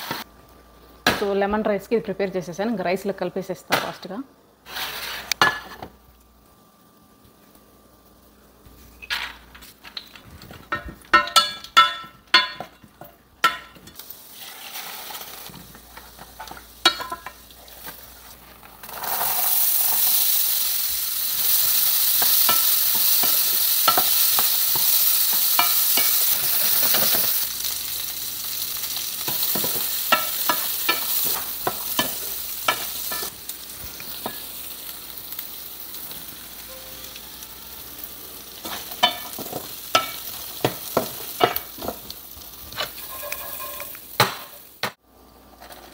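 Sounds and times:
wooden spatula scraping a pan: 4.6 - 5.4, 42.7 - 44.0
chickpeas sizzling in oil: 4.6 - 45.9.

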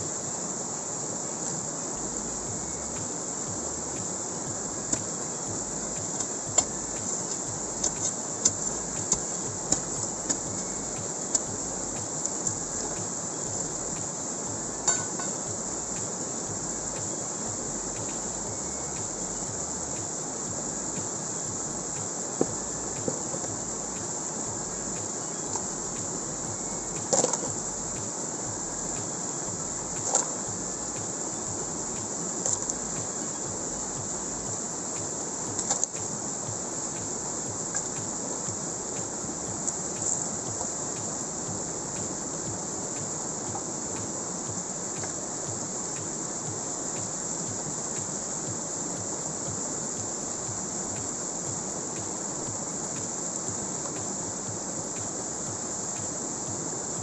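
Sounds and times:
mountain stream rushing: 0.0 - 57.0.

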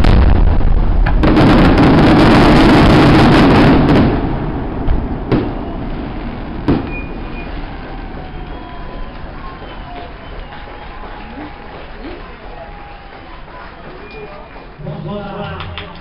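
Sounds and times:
single firework bangs: 0.0 - 11.1
fireworks bursting and crackling: 0.0 - 14.8.

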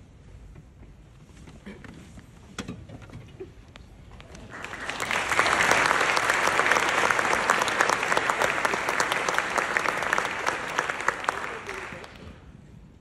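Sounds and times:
audience applauding: 4.3 - 12.4.

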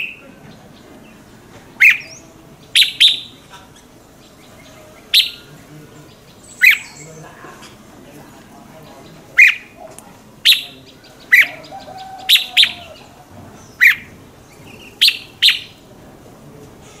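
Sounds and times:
bird calling sharp notes: 0.0 - 3.5, 4.2 - 7.2, 9.2 - 15.9.

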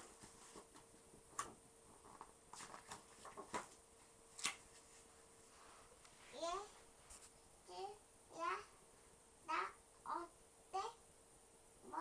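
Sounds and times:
book pages rustling: 0.0 - 6.4.

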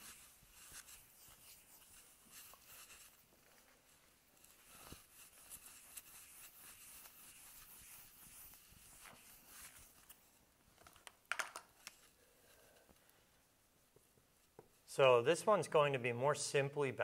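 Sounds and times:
eraser rubbing on whiteboard: 0.0 - 10.2.

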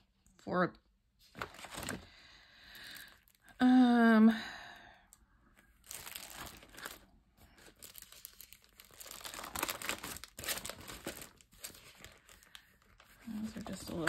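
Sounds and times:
plastic sleeves crinkling: 1.3 - 2.1, 2.7 - 3.6, 5.5 - 14.0.

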